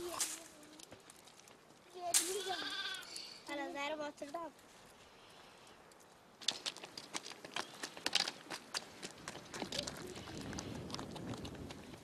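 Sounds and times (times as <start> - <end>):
footsteps on gravel: 6.4 - 12.0.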